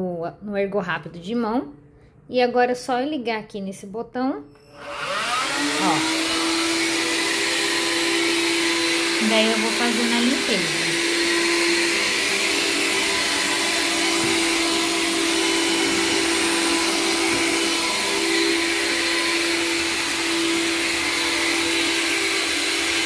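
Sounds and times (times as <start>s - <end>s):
handheld vacuum running: 4.6s - 23.0s.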